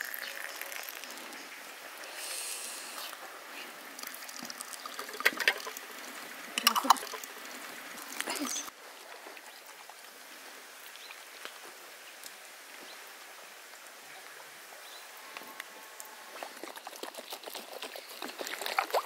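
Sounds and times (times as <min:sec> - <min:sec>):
liquid trickling into glass jar: 0:00.0 - 0:01.4, 0:04.0 - 0:06.0, 0:06.6 - 0:08.7
glass jars clinking: 0:06.6 - 0:07.1.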